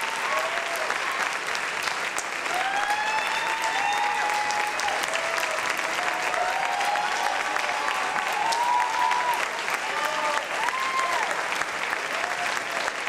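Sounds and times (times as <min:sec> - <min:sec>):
audience clapping: 0:00.0 - 0:13.0
crowd whooping: 0:02.4 - 0:11.4.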